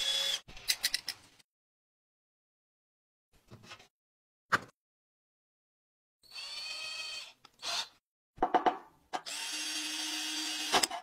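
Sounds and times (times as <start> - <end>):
drill boring into wood: 6.2 - 7.9, 9.2 - 10.9
cordless drill whining: 6.3 - 7.9, 9.2 - 10.8.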